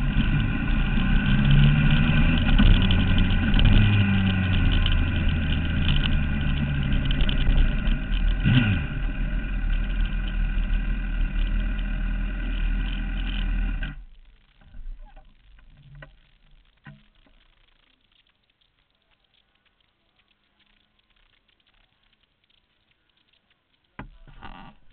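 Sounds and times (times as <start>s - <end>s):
motorcycle engine running: 0.0s - 14.1s.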